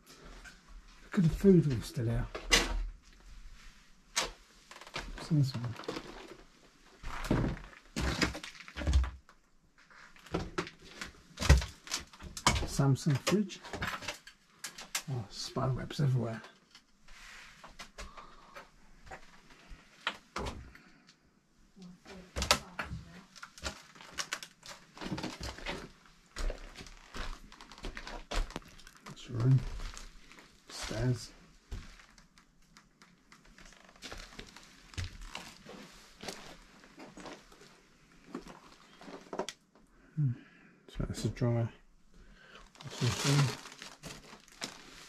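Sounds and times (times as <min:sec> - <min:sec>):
irregular knocks and crunches: 0:04.2 - 0:15.1, 0:22.4 - 0:39.9, 0:42.6 - 0:45.0.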